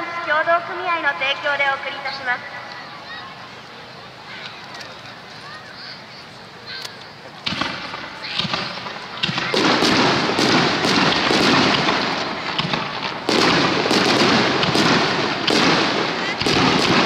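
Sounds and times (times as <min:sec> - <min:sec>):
continuous fireworks din: 0:00.0 - 0:17.0
firework bangs: 0:07.4 - 0:17.0.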